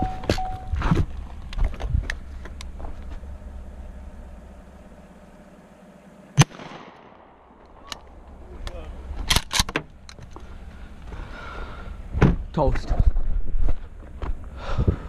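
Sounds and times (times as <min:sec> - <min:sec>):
truck engine idling: 0:00.0 - 0:06.4, 0:07.2 - 0:15.0
shotgun shot with echo: 0:06.4 - 0:07.2.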